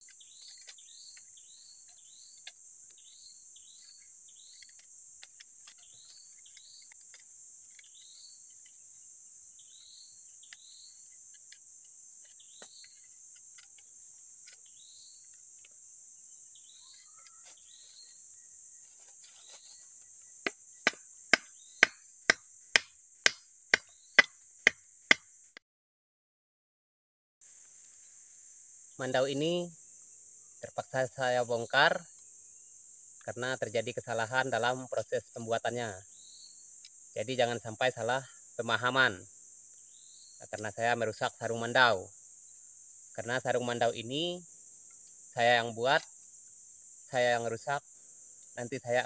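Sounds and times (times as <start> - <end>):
insect hiss: 0.0 - 25.6, 27.4 - 49.0
sharp wooden knocks: 20.4 - 25.3.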